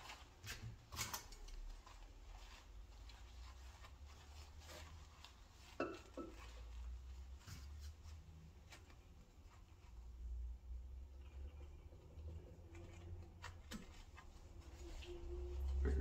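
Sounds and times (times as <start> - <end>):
towel rubbing on metal: 0.0 - 10.4.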